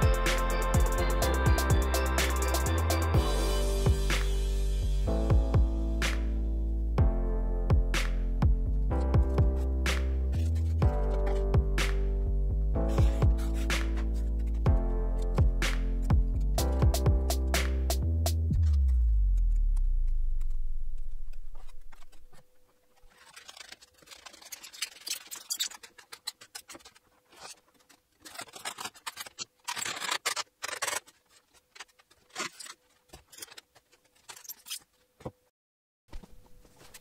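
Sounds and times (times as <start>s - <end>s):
background music: 0.0s - 19.5s
foam parts knocking and scraping: 21.4s - 35.5s.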